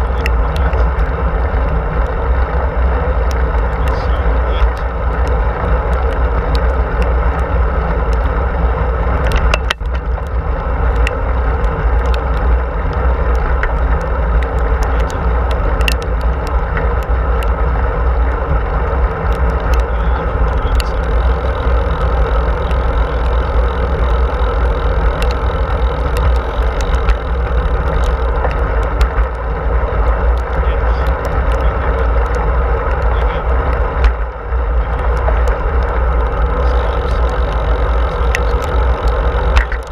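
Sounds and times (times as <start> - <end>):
tyre noise on asphalt: 0.0 - 39.9
wind buffeting microphone: 0.0 - 39.9
small clicks: 9.1 - 18.6, 19.2 - 39.9.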